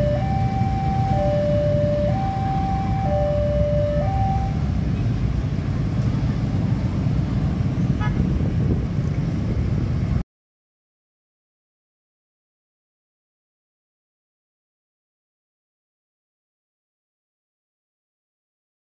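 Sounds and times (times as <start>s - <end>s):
two-tone crossing alarm: 0.0s - 4.8s
traffic rumble: 0.0s - 10.2s.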